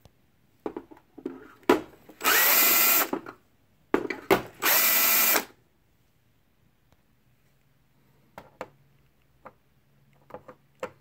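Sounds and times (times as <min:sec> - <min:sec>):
power drill whining: 0:02.2 - 0:03.2, 0:04.6 - 0:05.5.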